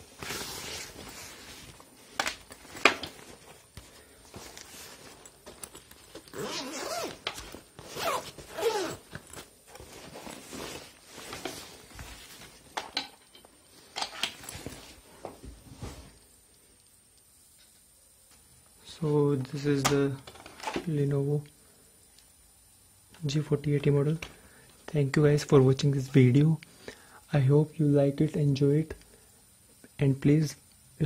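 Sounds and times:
fabric rustling and scraping: 0.0 - 12.8, 13.4 - 16.2
zip being pulled: 6.3 - 9.1.

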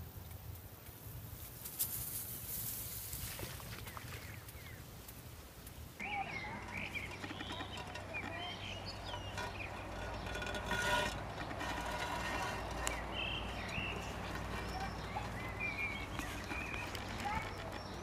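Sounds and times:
small birds chirping: 3.7 - 18.0
low outdoor rumble: 5.6 - 18.0.

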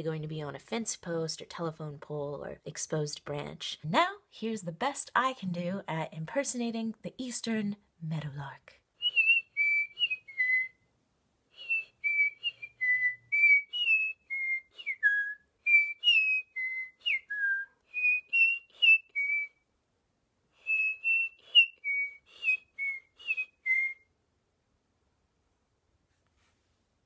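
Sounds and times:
person whistling birdsong: 9.0 - 10.8, 11.6 - 19.6, 20.6 - 24.0.

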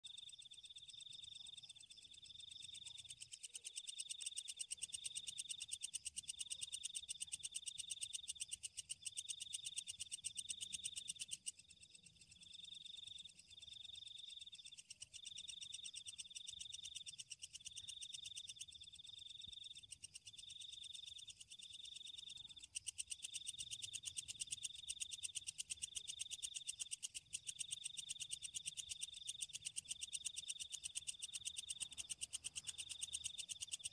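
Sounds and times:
insects trilling: 0.0 - 33.9.

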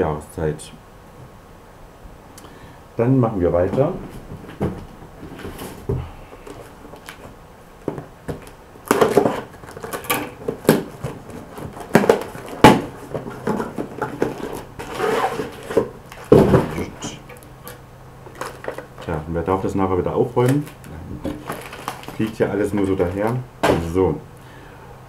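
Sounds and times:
packing material rustling: 4.0 - 19.2, 20.3 - 23.9.

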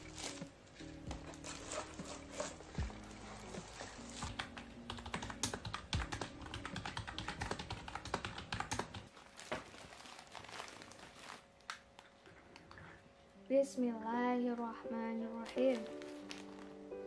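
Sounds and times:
fast typing on keyboard: 4.3 - 9.1.

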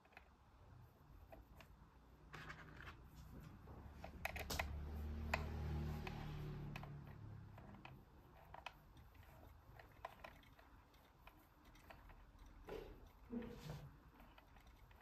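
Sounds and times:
plastic toy pieces clicking: 6.8 - 13.3.

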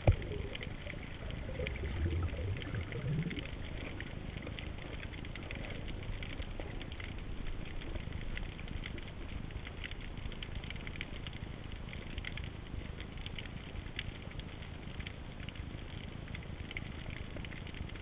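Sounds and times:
low underwater rumble: 0.0 - 13.9
underwater crackle of clicks: 0.0 - 18.0.

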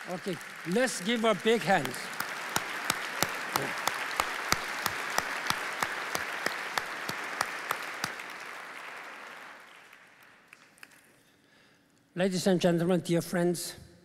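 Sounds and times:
audience applauding: 0.0 - 11.2
close hand claps: 0.0 - 11.3.

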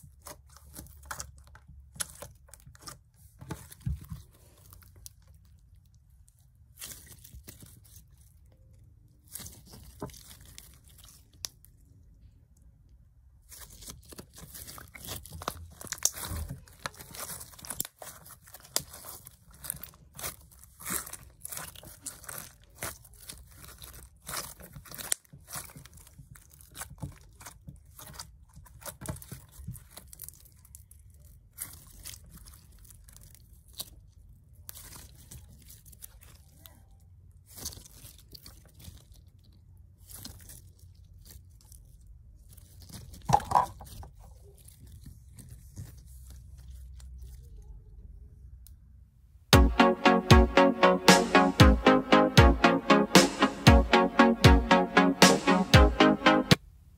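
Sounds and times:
slime crackling and popping: 13.4 - 47.4.

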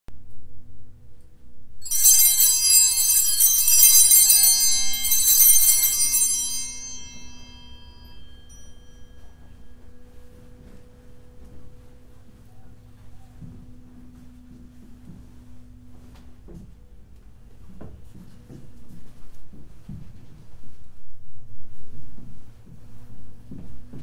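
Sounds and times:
altar bells jangling: 1.8 - 10.1.

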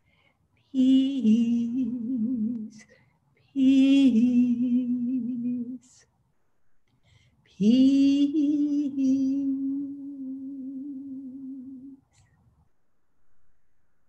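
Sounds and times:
woman singing long held notes: 0.7 - 6.0, 7.5 - 12.2.

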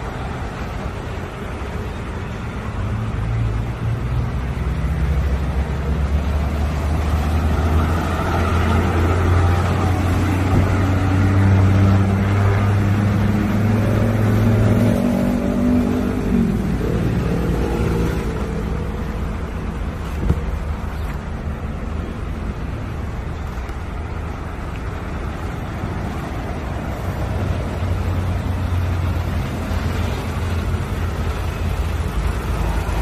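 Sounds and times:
diesel engine idling: 16.5 - 33.0.

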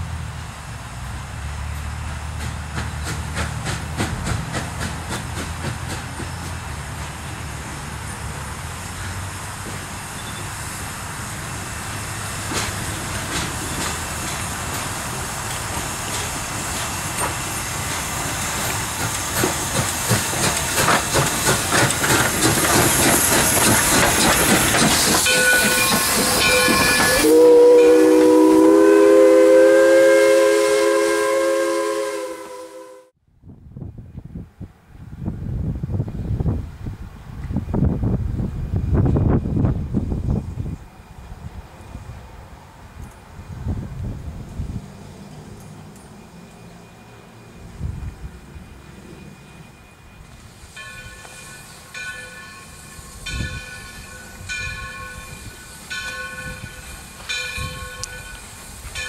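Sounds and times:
hissing steam: 0.0 - 32.8, 47.5 - 59.0
steam locomotive chuffing: 0.0 - 32.9, 44.5 - 59.0
steam whistle chord: 25.3 - 33.2.

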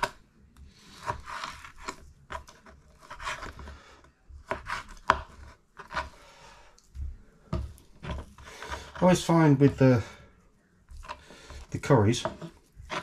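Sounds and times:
knife tapping wooden board: 10.9 - 13.0
knife slicing meat: 11.0 - 13.0.

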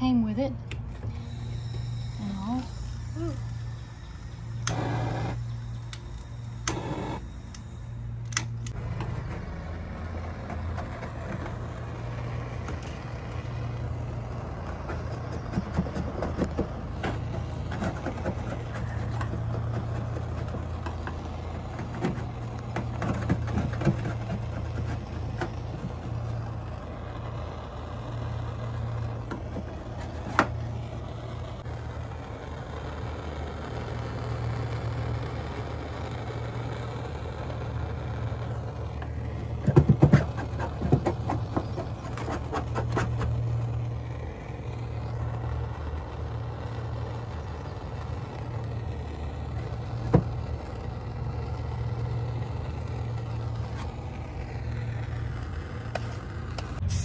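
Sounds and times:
hissing torch flame: 0.8 - 57.0
torch lighting click: 3.7 - 9.1
scraper taps and scrapes on metal: 14.9 - 25.9, 39.6 - 43.4.

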